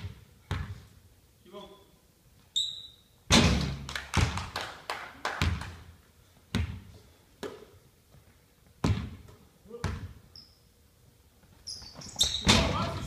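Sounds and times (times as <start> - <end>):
basketball bouncing on wooden floor: 0.0 - 0.8, 5.4 - 5.7, 6.5 - 6.9, 8.8 - 10.2.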